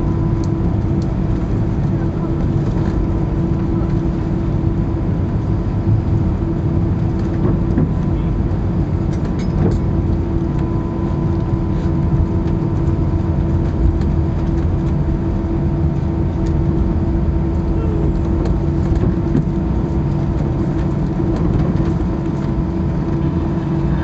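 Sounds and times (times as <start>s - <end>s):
steady cabin hum: 0.0s - 24.0s
wheels and engines rumbling: 0.0s - 24.0s.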